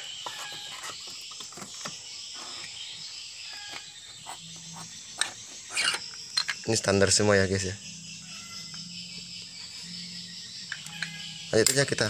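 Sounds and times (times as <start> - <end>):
metal parts clicking and knocking: 5.2 - 6.7.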